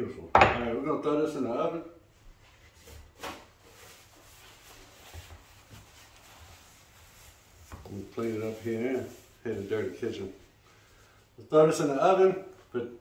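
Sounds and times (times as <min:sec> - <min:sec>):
paper towel rubbing glass dish: 0:02.5 - 0:11.0.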